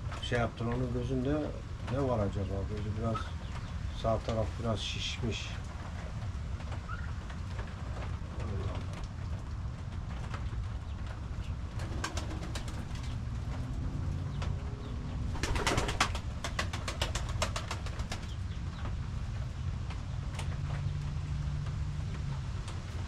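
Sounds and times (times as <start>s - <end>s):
steady low rumble: 0.0s - 23.0s
pigeons cooing: 11.7s - 18.4s.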